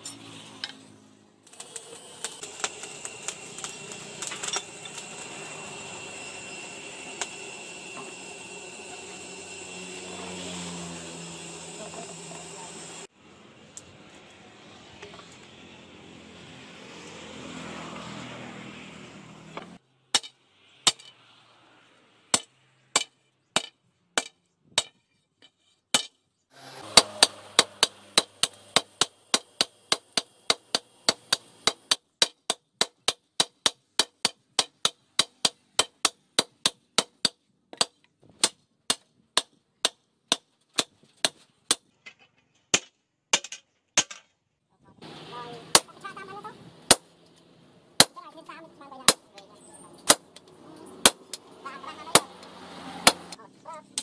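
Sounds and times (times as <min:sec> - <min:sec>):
forge blower rushing: 0:01.5 - 0:17.4, 0:26.5 - 0:31.7
hammer striking hot steel on anvil: 0:02.2 - 0:05.9, 0:19.6 - 0:21.2, 0:22.3 - 0:25.0, 0:25.9 - 0:26.1, 0:26.8 - 0:41.9, 0:45.7 - 0:46.0, 0:46.9 - 0:47.1, 0:48.0 - 0:48.2, 0:49.1 - 0:51.5, 0:52.1 - 0:53.4.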